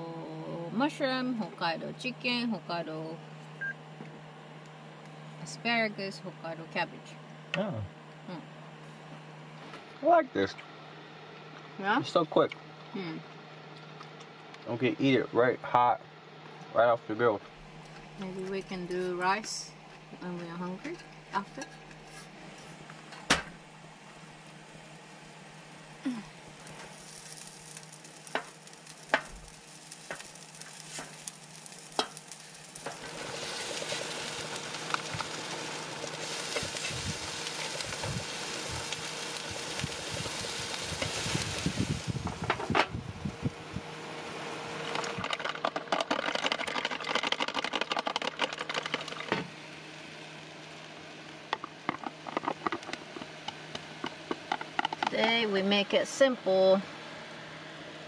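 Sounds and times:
food sizzling on a griddle: 0:24.0 - 0:43.3.

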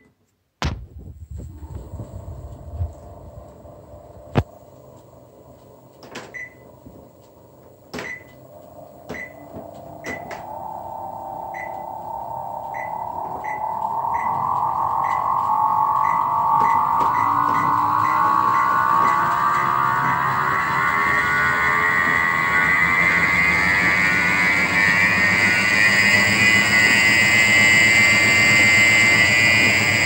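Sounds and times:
treadmill motor whine rising: 0:01.3 - 0:30.0
short beeps: 0:09.1 - 0:20.7.

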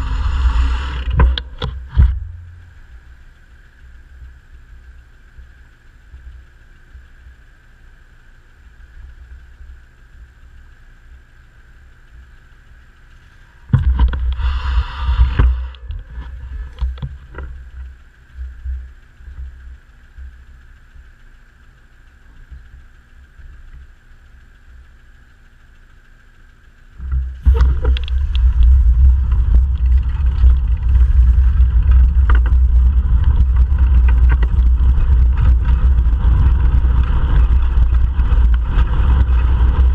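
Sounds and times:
wind buffeting microphone: 0:00.0 - 0:03.7, 0:13.6 - 0:17.9, 0:27.0 - 0:39.9.

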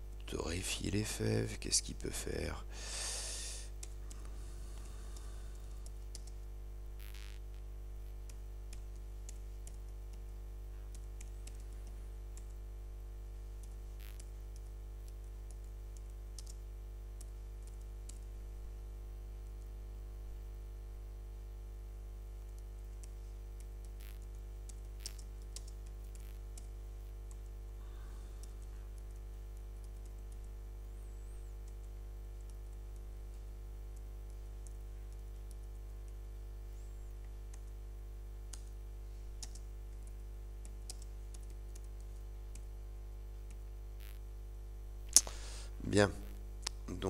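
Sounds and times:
low electrical hum: 0:00.0 - 0:47.0
keyboard keystrokes: 0:39.4 - 0:39.6.

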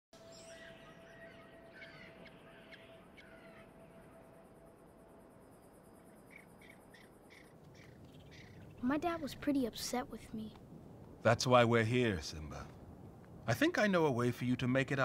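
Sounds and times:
birds and insects chirping: 0:00.2 - 0:11.2
faint steady tone: 0:00.2 - 0:11.2
low hiss: 0:01.6 - 0:15.0.

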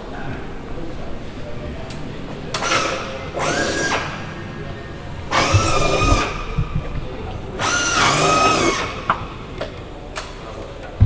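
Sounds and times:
power drill whining: 0:02.6 - 0:09.5.

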